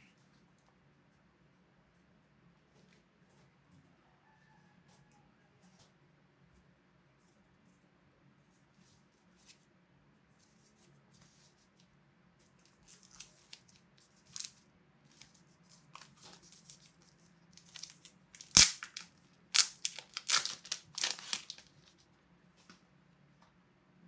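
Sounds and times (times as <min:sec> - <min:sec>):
plastic wrapping crinkling: 0:12.6 - 0:22.0
plastic wrapping tearing: 0:12.7 - 0:14.6, 0:15.2 - 0:22.0.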